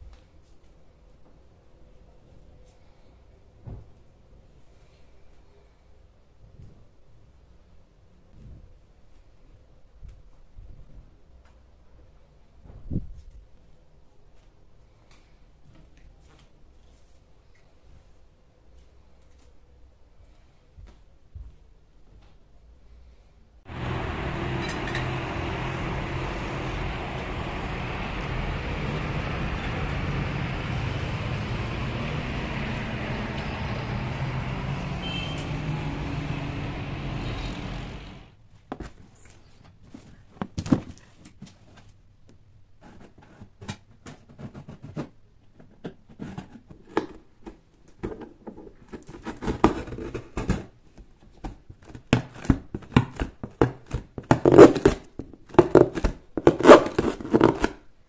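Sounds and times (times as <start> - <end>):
city traffic noise: 23.7 - 38.4.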